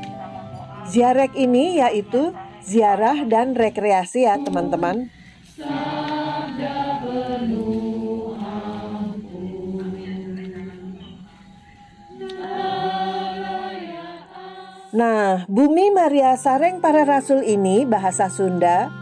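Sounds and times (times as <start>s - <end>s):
group singing a slow hymn: 2.3s - 15.0s.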